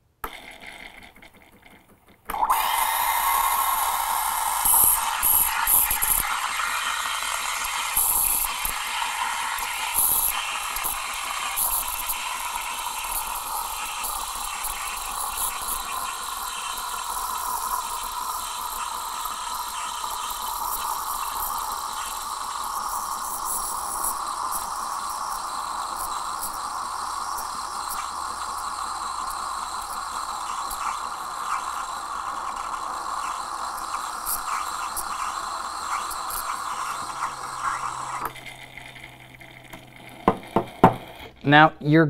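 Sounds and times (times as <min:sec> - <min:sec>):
steam wand hissing in milk: 0:02.3 - 0:41.2.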